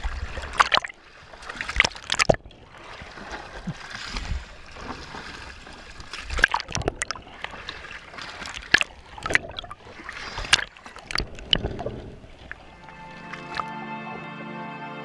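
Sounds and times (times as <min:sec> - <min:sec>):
seawater splashing: 0:00.0 - 0:13.9
music: 0:12.7 - 0:15.0.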